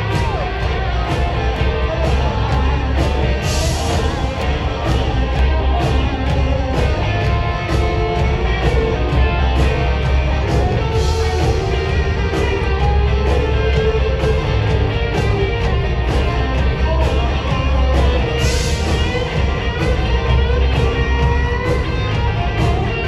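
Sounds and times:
bass guitar: 0.0s - 23.0s
drum beat: 0.0s - 23.0s
electric guitar lead: 0.0s - 23.0s.

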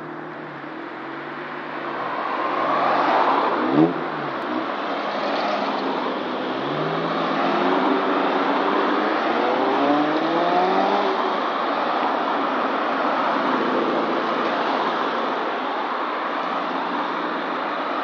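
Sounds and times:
cars driving past: 0.0s - 18.0s
tyre and road noise: 0.0s - 18.0s.

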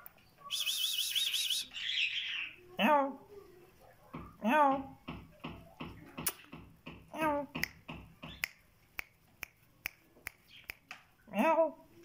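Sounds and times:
sharp clicks: 5.1s - 11.1s.

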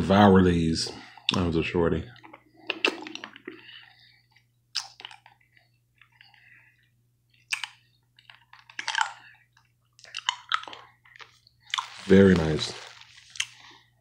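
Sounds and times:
candy sucking and chewing: 2.2s - 3.7s, 4.7s - 5.4s, 7.4s - 13.8s.

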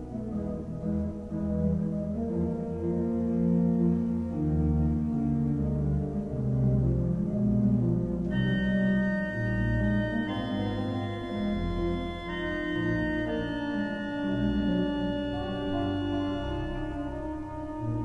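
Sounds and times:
pipe organ playing chords: 0.0s - 18.0s.

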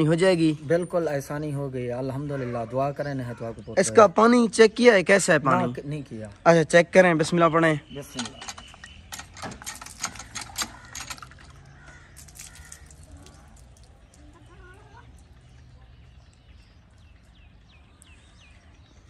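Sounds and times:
bird chirping: 0.0s - 19.0s
hand pump handle clanking: 8.0s - 13.0s.

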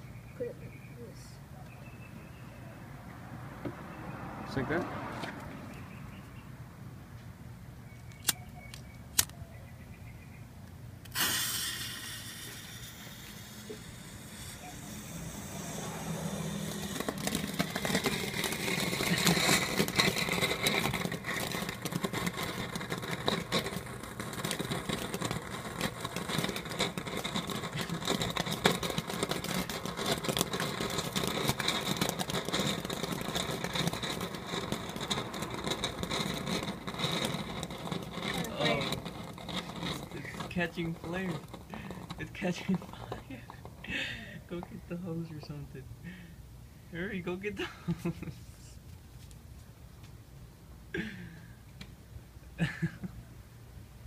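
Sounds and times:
fuse hissing: 11.1s - 17.0s
firework fountain hissing and crackling: 11.1s - 46.3s.

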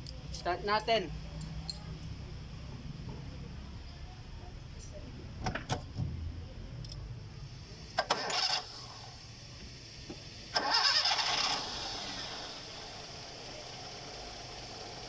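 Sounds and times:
car engine idling: 6.1s - 15.0s
starter motor cranking: 8.0s - 9.0s, 10.5s - 12.8s.

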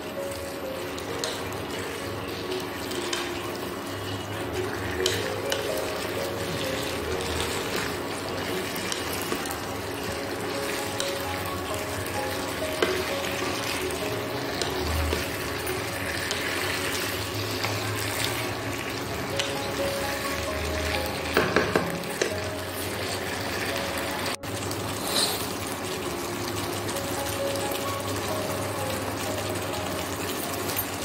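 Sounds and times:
chicken sizzling in a wok: 0.0s - 31.0s
faint background music: 0.0s - 31.0s
spatula scraping a wok: 25.0s - 25.6s.

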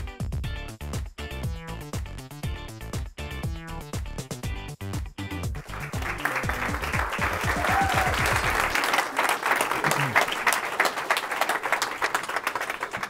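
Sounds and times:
electronic music with low beat: 0.1s - 4.9s
audience applauding: 5.6s - 13.0s.

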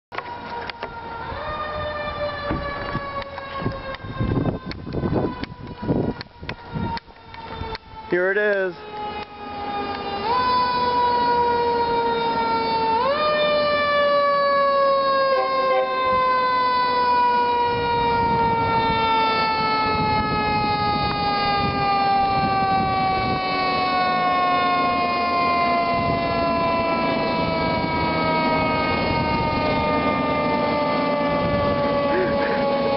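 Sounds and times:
mechanical siren wailing: 0.1s - 32.9s
truck engine rumble: 8.7s - 32.9s.

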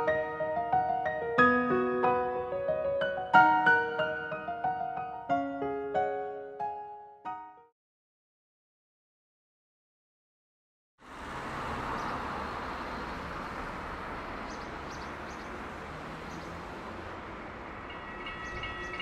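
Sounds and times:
pulsing ringing tone: 17.8s - 19.0s.

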